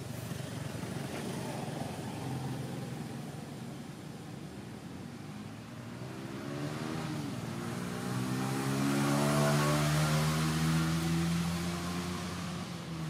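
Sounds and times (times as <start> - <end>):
vehicle engine passing by: 6.0 - 13.0.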